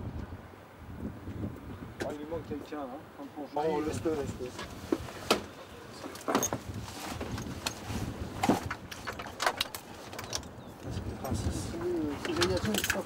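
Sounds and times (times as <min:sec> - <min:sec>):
buckles and equipment clicking: 0:06.0 - 0:11.1, 0:11.8 - 0:13.0.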